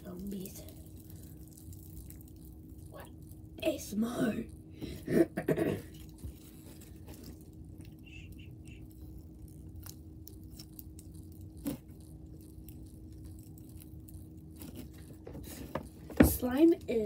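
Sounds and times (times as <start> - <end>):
slime crackling and popping: 8.8 - 15.1.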